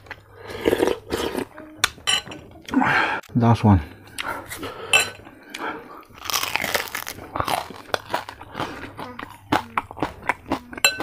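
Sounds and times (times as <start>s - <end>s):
crispy food crunching: 5.5s - 11.0s.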